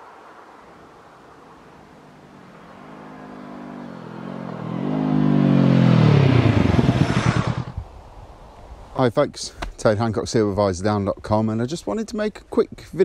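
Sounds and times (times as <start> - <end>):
motorcycle accelerating past: 1.4 - 7.9.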